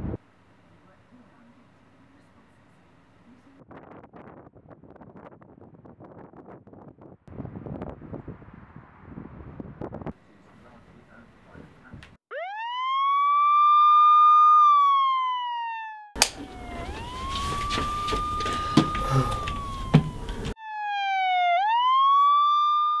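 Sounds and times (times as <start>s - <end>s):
police siren wailing: 12.3s - 23.0s
sharp knocks: 16.2s - 20.6s.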